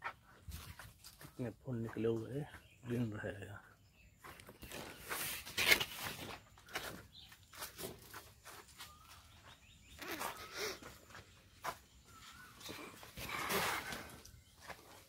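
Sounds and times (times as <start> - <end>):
footsteps on dirt path: 0.0 - 15.0
leaves brushing and rustling: 4.6 - 10.5.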